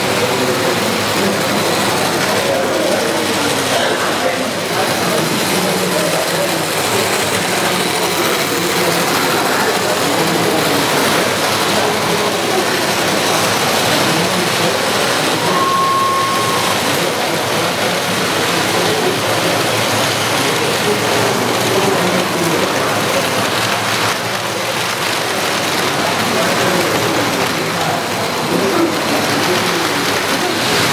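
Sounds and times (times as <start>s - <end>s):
model train wheels rattling: 0.0s - 15.8s, 16.7s - 30.9s
steady whistle tone: 15.3s - 17.3s.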